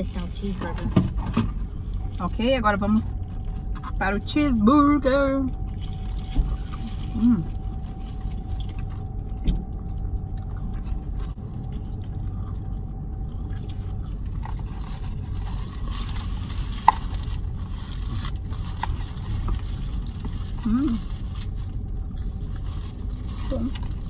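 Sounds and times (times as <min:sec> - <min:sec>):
car cabin hum: 0:00.0 - 0:24.0
paper wrapper crinkling: 0:05.6 - 0:09.3, 0:13.5 - 0:24.0
person biting and chewing: 0:05.7 - 0:24.0.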